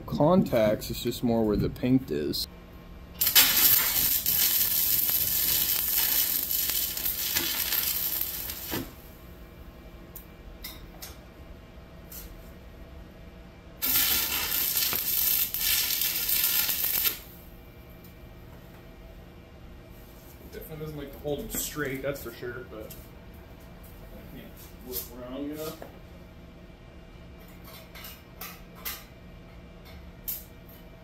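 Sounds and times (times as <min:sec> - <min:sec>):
welding arc crackling: 0:03.2 - 0:09.2, 0:13.8 - 0:17.4.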